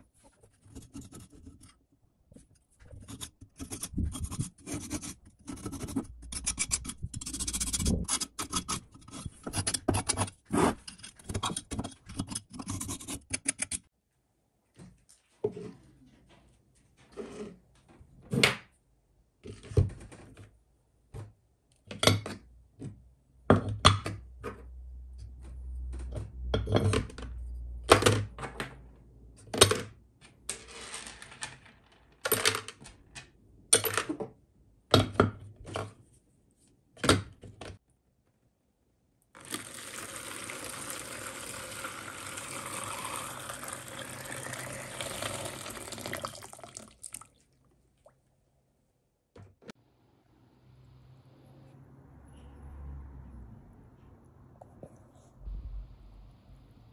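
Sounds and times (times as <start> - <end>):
water pouring into bucket: 39.4 - 47.6.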